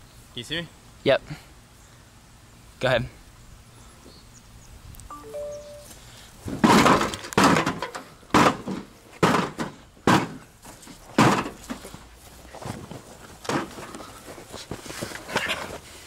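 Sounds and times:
thuds on sheet metal casing: 6.5 - 10.4, 11.2 - 11.6.

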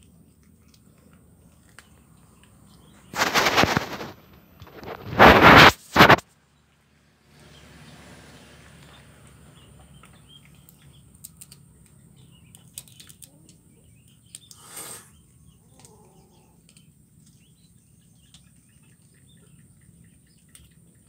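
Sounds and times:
faint birds chirping: 0.0 - 21.0
burst of hissing noise: 4.8 - 6.2, 14.6 - 15.1
small clicks: 10.0 - 13.6.

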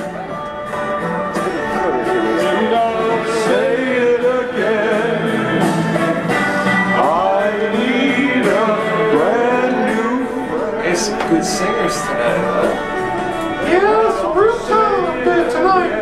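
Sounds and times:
backing music with steady beat: 0.0 - 16.0
man singing into a microphone: 1.8 - 5.7, 7.0 - 12.8.

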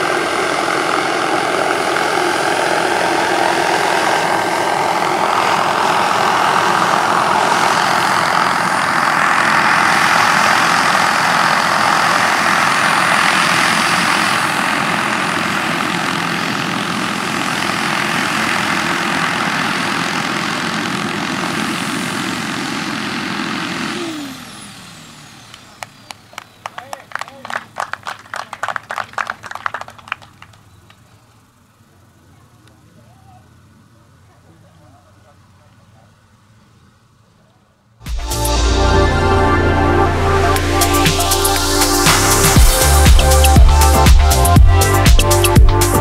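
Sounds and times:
model helicopter turbine whine: 0.0 - 27.0, 38.7 - 45.0
helicopter rotor noise: 0.0 - 32.4, 40.3 - 46.0.

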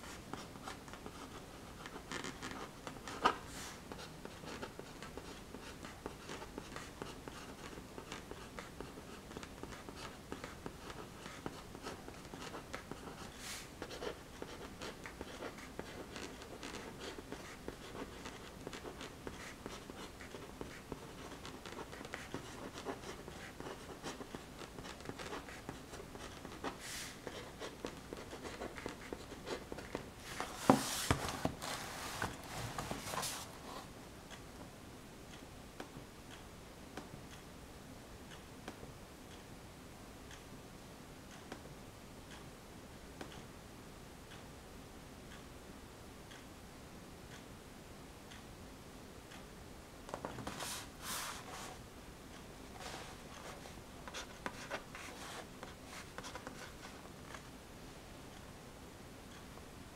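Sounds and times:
pen scratching on paper: 0.0 - 30.9.

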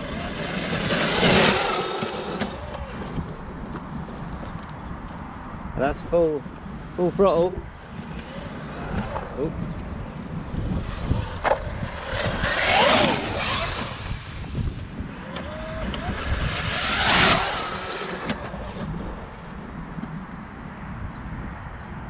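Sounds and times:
electric motor whining: 0.0 - 3.4, 10.6 - 19.4.

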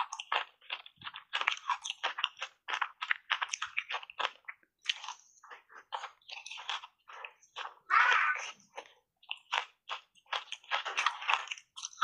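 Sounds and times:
ice crunching in mouth: 0.0 - 12.0.

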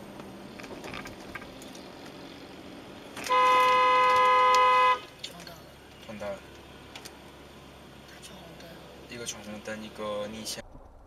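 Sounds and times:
traffic and road noise: 0.0 - 11.0
car horn blast: 3.2 - 5.1.

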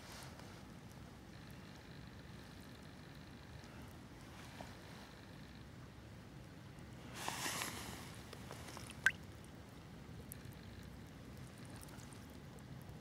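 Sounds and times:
river water murmur: 8.0 - 9.4
water sloshing: 8.7 - 9.2.

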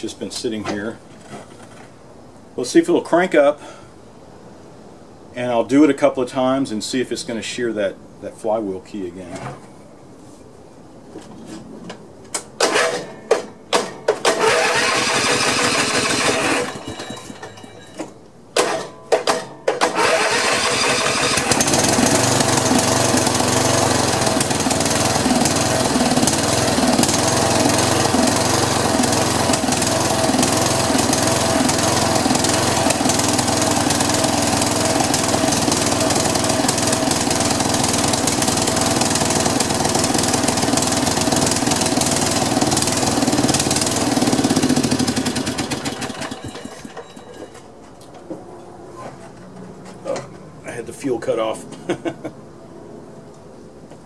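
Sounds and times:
lawn mower engine starting and running: 11.2 - 48.4.

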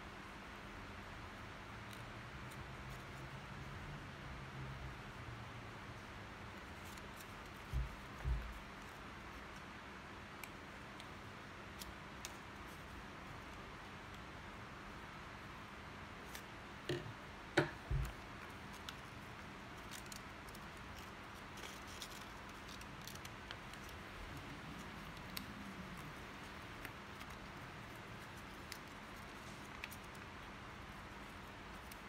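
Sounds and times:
scissors snipping paper: 17.8 - 32.0
paper crinkling: 17.9 - 32.0.

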